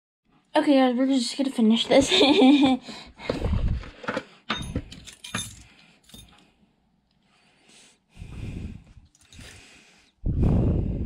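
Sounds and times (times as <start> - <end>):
metal parts clinking and jingling: 4.5 - 6.4.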